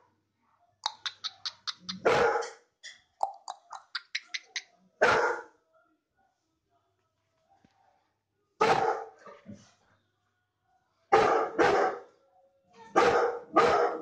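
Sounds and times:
dog barking: 0:01.8 - 0:02.6, 0:04.2 - 0:06.8, 0:07.4 - 0:09.4, 0:10.6 - 0:14.0.

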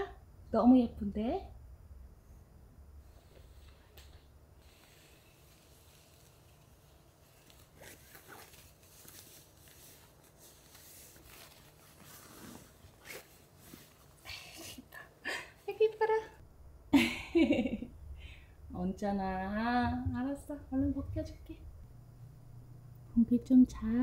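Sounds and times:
cloth rustling: 0:04.6 - 0:14.8.

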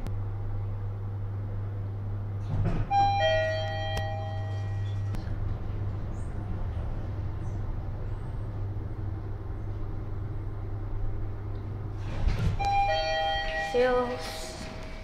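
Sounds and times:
elevator hum and rushing: 0:00.0 - 0:15.0
elevator arrival clunk: 0:02.4 - 0:08.1, 0:11.6 - 0:15.0
arrival chime tone: 0:12.6 - 0:14.7.

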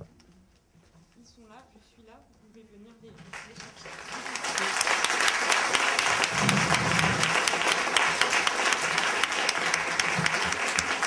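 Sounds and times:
audience applauding: 0:03.3 - 0:11.0.

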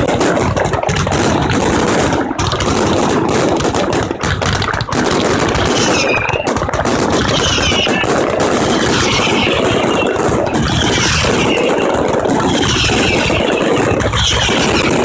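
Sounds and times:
fireworks crackling: 0:00.0 - 0:15.0
wavering firework whistles: 0:05.5 - 0:06.5, 0:07.2 - 0:15.0.

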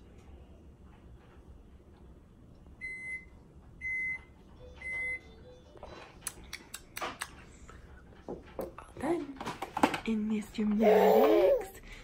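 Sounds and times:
electronic appliance beeps: 0:02.8 - 0:05.8.

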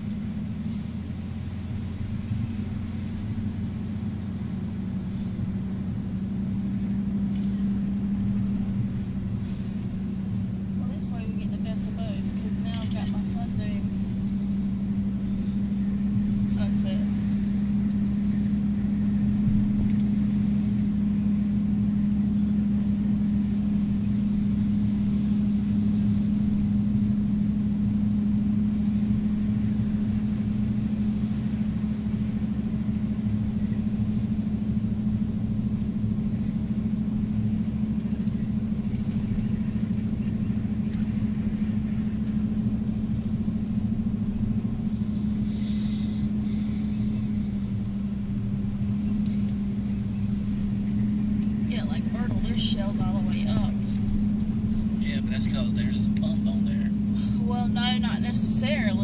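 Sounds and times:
vehicle engine droning: 0:00.0 - 0:59.0.

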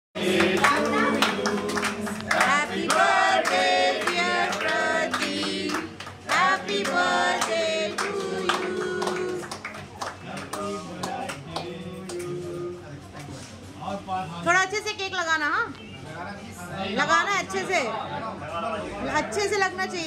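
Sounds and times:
people singing: 0:00.2 - 0:09.6, 0:10.2 - 0:12.8
group clapping in time: 0:00.2 - 0:12.4.

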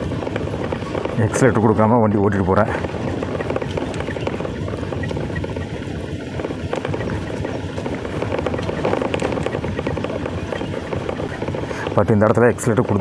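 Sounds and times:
motorbike engine running low: 0:00.0 - 0:13.0
riding wind rush: 0:00.0 - 0:13.0.

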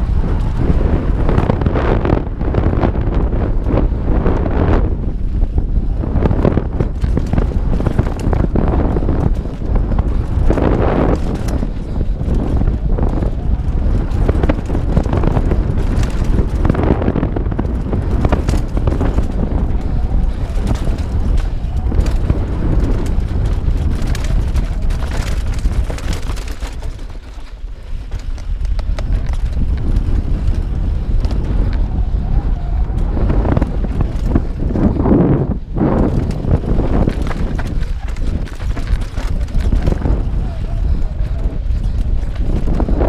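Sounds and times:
bike clattering over rough ground: 0:00.0 - 0:43.0
wind rumbling on microphone: 0:00.0 - 0:43.0.

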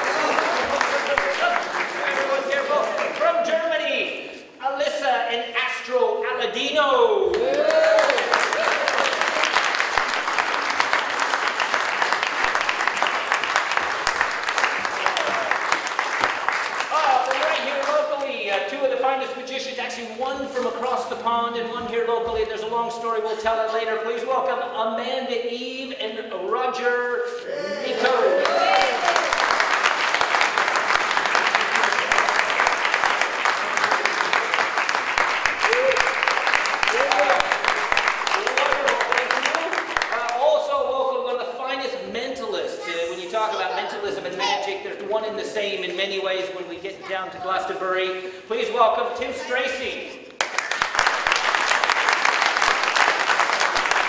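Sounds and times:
audience applause: 0:00.0 - 0:03.4, 0:07.3 - 0:18.2, 0:28.0 - 0:40.7, 0:50.4 - 0:54.0.

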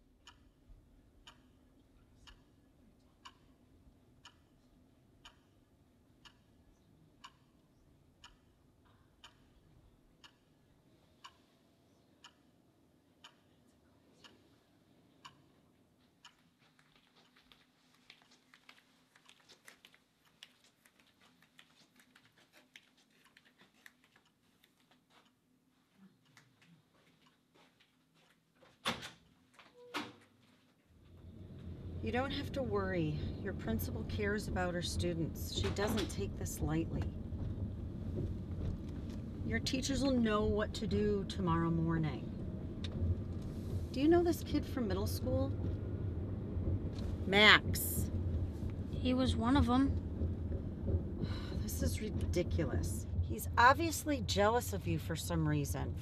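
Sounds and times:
wall clock ticking: 0:00.0 - 0:02.6, 0:03.2 - 0:04.6, 0:05.2 - 0:06.5, 0:07.2 - 0:07.5, 0:08.2 - 0:08.6, 0:09.2 - 0:09.6, 0:10.2 - 0:10.5, 0:11.2 - 0:11.5, 0:12.2 - 0:12.5, 0:13.2 - 0:13.6, 0:15.2 - 0:18.4, 0:31.4 - 0:43.1, 0:50.8 - 0:56.0
low room hum: 0:00.0 - 0:56.0.

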